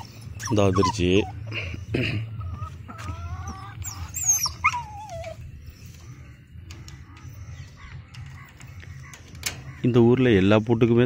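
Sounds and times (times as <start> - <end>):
dog whining: 0.0 - 1.6, 2.6 - 5.7.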